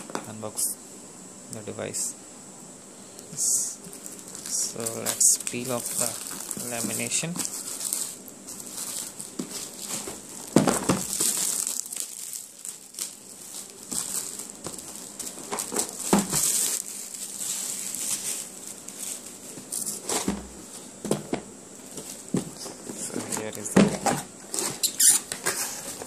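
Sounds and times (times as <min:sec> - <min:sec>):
plastic film crinkling and tearing: 0:03.8 - 0:20.8.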